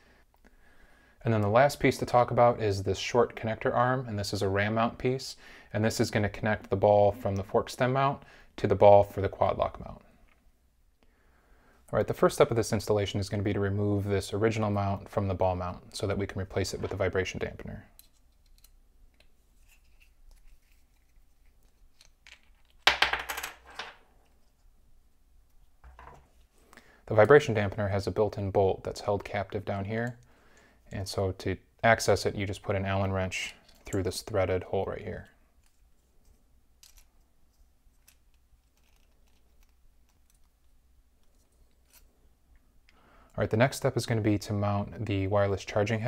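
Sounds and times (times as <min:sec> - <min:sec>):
plastic parts handled: 0:17.9 - 0:23.0, 0:35.6 - 0:42.2
plastic parts clicking: 0:37.9 - 0:40.6.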